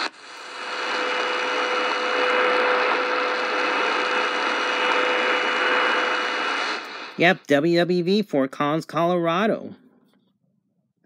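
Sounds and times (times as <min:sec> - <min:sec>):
shortwave radio static hiss: 0:00.0 - 0:07.9.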